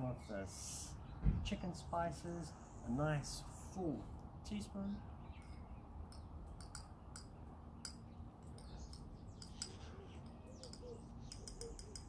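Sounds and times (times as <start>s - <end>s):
faint bird calls: 8.6s - 12.0s.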